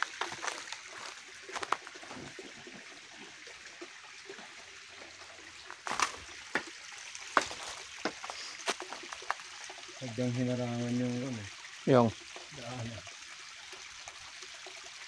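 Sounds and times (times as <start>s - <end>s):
footsteps on twigs and stones: 0.0s - 2.3s, 5.6s - 9.4s
water trickling down rock: 0.0s - 15.0s.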